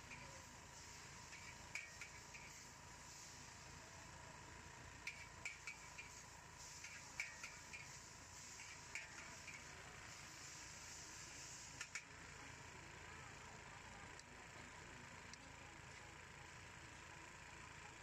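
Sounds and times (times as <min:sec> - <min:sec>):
steady sizzle: 0:00.0 - 0:13.4.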